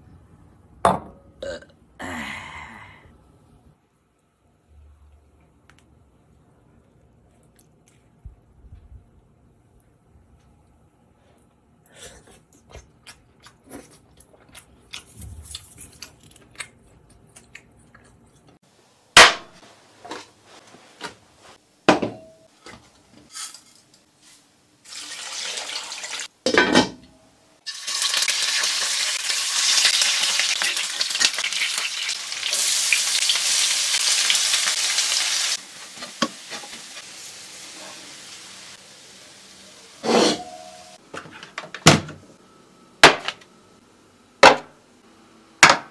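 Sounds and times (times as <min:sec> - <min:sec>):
pots and utensils clinking: 0:21.9 - 0:24.0, 0:26.1 - 0:27.1, 0:40.0 - 0:41.7.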